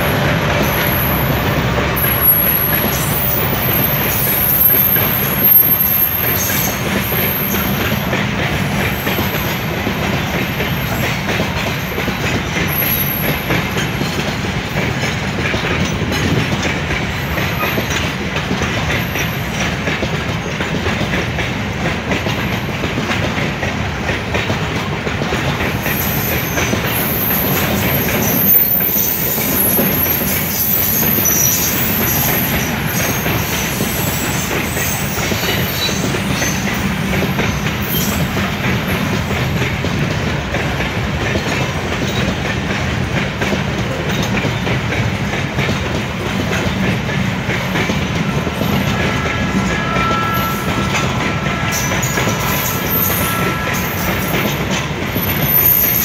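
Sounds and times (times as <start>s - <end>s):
train wheels clattering on rails: 0.0s - 56.0s
high-pitched wheel squeal: 0.6s - 7.9s, 25.8s - 36.8s, 48.8s - 54.6s, 55.2s - 56.0s.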